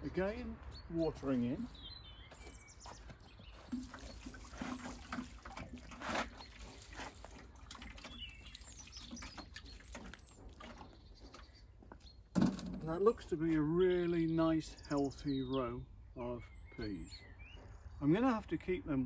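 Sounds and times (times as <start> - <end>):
birds chirping faintly: 0.0 - 19.0
water pattering onto soil and leaves: 1.5 - 13.2.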